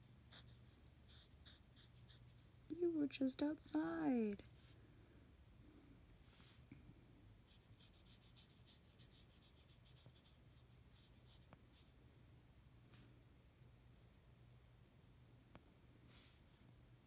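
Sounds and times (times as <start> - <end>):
marker scratching on paper: 0.0 - 2.6, 7.5 - 11.9.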